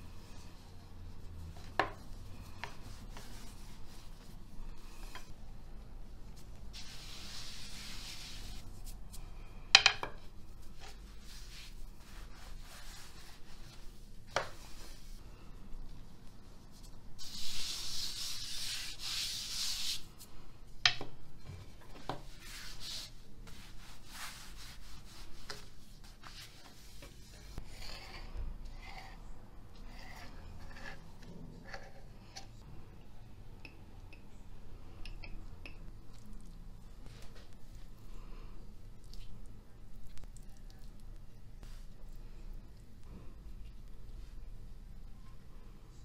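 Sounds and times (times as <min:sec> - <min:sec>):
hands rubbing flour on dough: 0:00.0 - 0:05.1, 0:06.2 - 0:09.5, 0:10.2 - 0:20.4, 0:22.2 - 0:28.0, 0:40.2 - 0:42.4.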